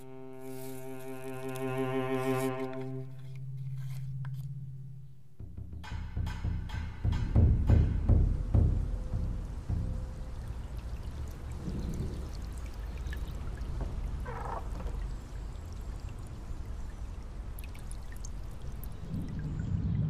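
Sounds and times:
steady low rumble: 6.3s - 14.3s, 15.0s - 20.0s
water trickling and dripping: 7.2s - 20.0s.

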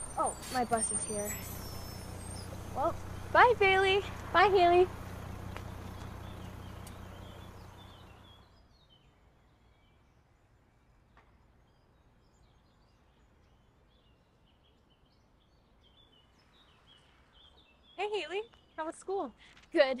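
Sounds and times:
low steady hum: 0.0s - 8.6s
small birds chirping: 0.0s - 20.0s.

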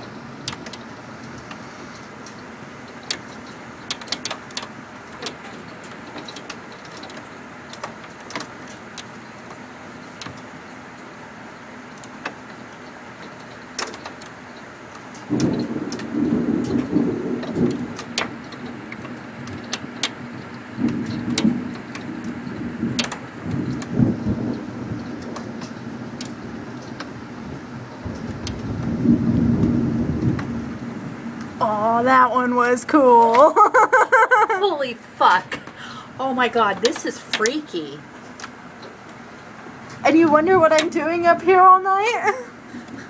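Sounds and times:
thunder rumbling: 15.2s - 38.2s, 39.9s - 43.0s.

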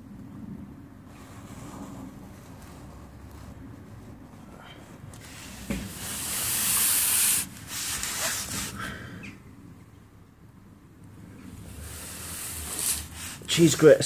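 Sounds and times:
faint rubbing noises: 1.0s - 8.8s, 11.3s - 14.0s.

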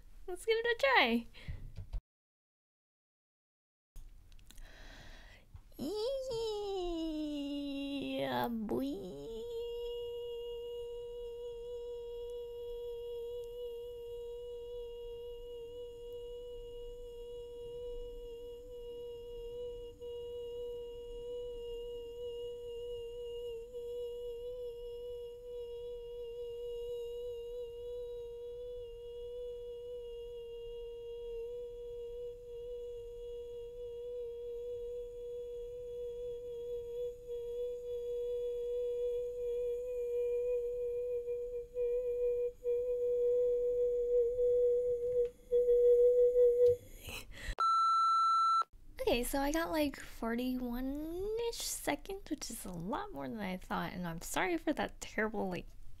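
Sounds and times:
woman singing high note: 5.8s - 47.0s.

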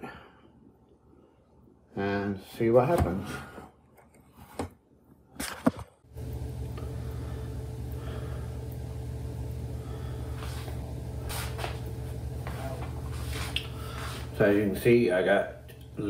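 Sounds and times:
steady low hum: 6.1s - 16.0s
soft rustles: 10.3s - 14.4s.

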